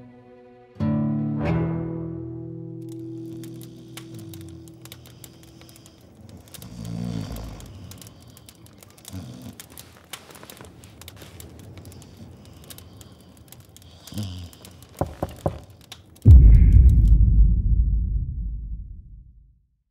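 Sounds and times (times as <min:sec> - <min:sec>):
faint crackling and clicks: 0:02.8 - 0:17.2
sharp knocks: 0:15.0 - 0:15.7
loud deep boom: 0:16.3 - 0:19.6.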